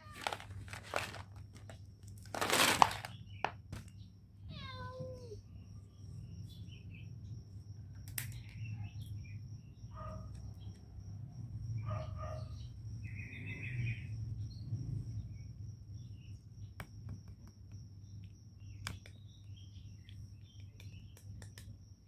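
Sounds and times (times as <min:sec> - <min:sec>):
cat meowing: 0:00.0 - 0:00.4, 0:04.5 - 0:05.4
rustling noise: 0:00.0 - 0:03.2.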